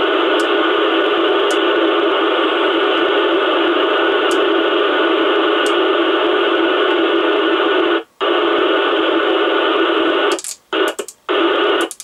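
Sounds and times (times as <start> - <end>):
radio receiver hiss: 0.0 - 12.0
radio clicks: 0.2 - 2.0, 3.2 - 6.1, 7.1 - 12.0.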